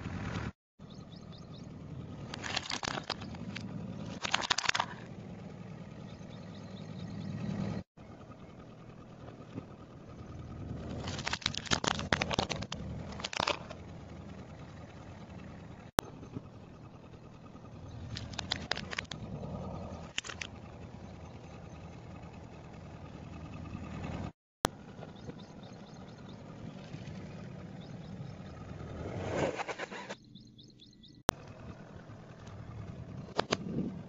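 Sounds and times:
car engine rumble: 0.0s - 34.0s
tyre crushing plastic toys: 11.0s - 13.7s.

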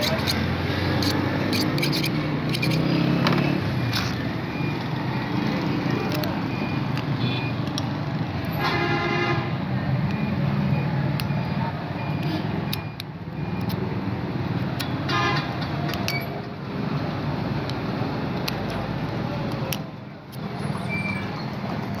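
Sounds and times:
metallic padlock clicks: 0.0s - 0.4s, 1.0s - 2.8s, 12.2s - 13.8s, 15.9s - 16.6s, 18.4s - 20.4s
busy street traffic: 0.0s - 22.0s
vehicle horn tooting: 8.5s - 9.5s, 15.1s - 15.5s.

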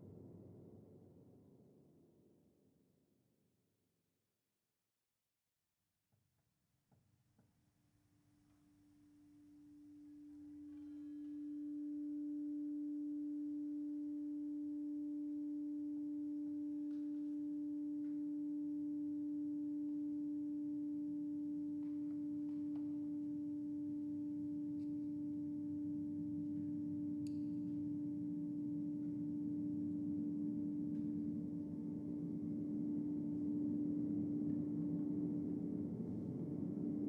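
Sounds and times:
steady pure drone tone: 9.7s - 37.0s.

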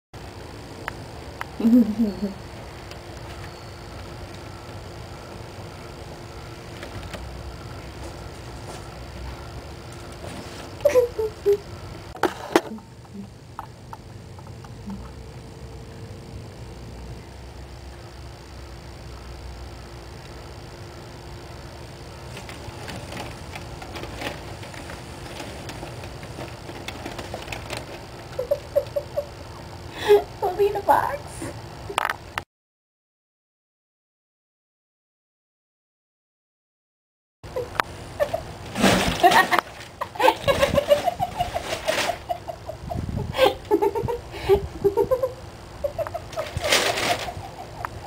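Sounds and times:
person giggling: 1.6s - 2.5s, 10.8s - 14.1s, 28.3s - 29.4s, 39.1s - 48.0s
newspaper and cardboard rustling: 22.3s - 28.1s, 38.7s - 42.4s
breathy gasps: 29.9s - 30.3s.

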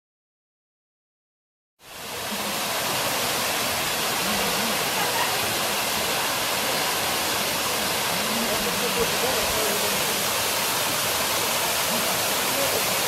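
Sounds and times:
waterfall rushing: 1.8s - 13.0s.

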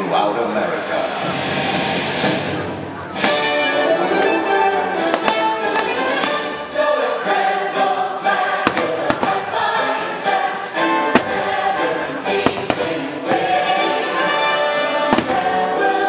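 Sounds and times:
firework bangs: 5.0s - 6.7s, 8.6s - 9.8s, 11.0s - 13.7s, 14.9s - 15.9s
choir singing over music: 5.5s - 16.0s.

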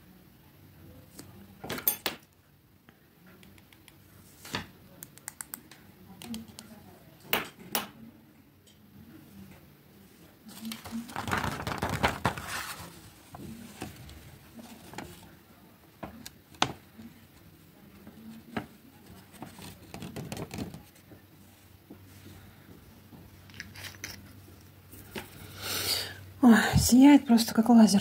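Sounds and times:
paper rustling: 10.5s - 15.4s, 17.9s - 21.1s.

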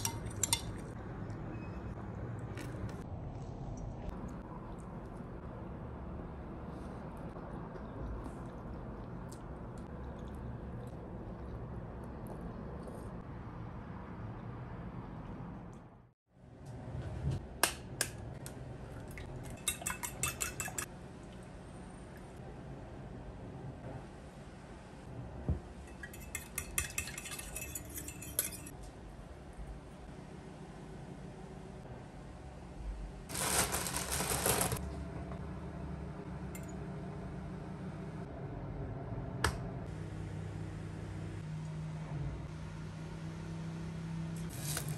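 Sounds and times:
fork beating eggs against glass: 19.5s - 20.9s, 25.9s - 28.7s
fork clinking in glass dish: 19.6s - 20.9s
fork tapping glass: 19.6s - 20.9s.

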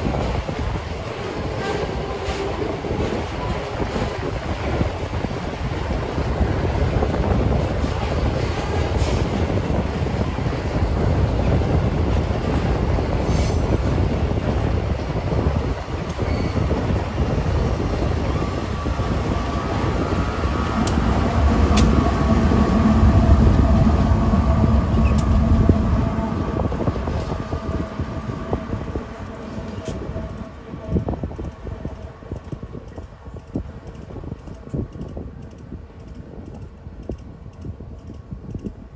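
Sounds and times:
train wagons rumbling on rails: 0.0s - 38.9s
high squeal of wheels: 16.2s - 16.8s.

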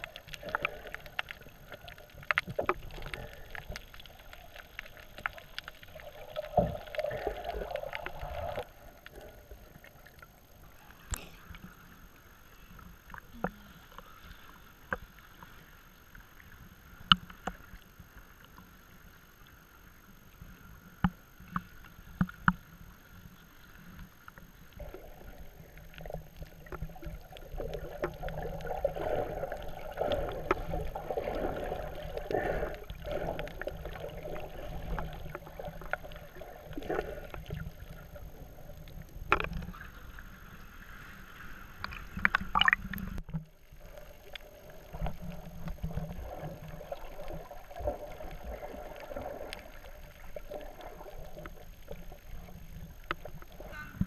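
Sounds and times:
underwater rush and gurgle: 0.0s - 54.0s.

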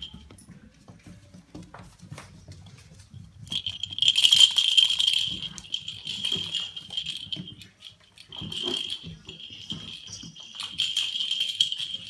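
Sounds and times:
ball toy rattling: 3.3s - 12.0s.

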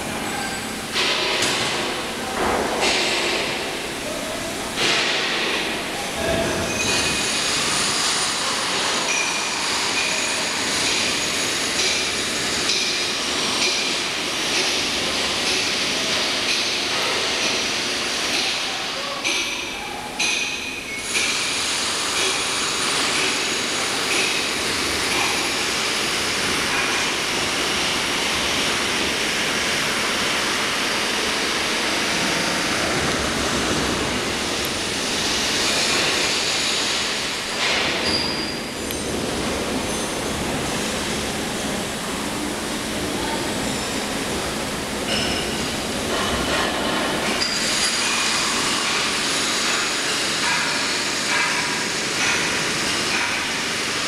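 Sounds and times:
industrial mechanical din: 0.0s - 54.0s.

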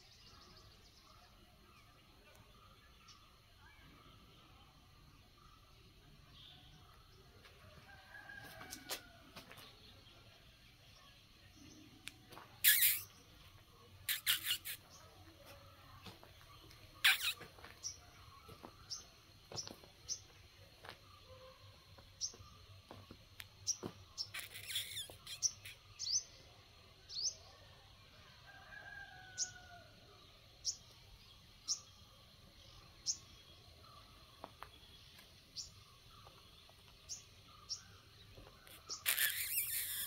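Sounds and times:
small bird chirping: 10.9s - 20.4s, 23.3s - 27.6s, 30.5s - 40.0s.

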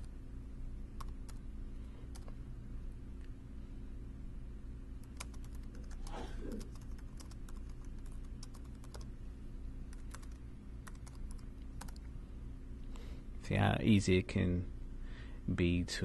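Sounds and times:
computer keyboard typing: 1.0s - 1.4s, 5.0s - 6.0s, 6.6s - 9.1s, 9.9s - 12.0s.

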